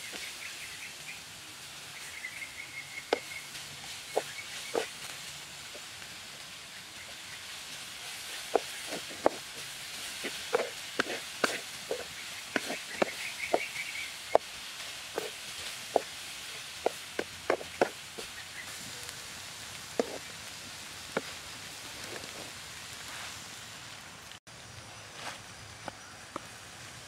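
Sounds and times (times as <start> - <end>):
greens sizzling: 0.0 - 27.0
wooden spatula scraping a metal wok: 3.1 - 23.5.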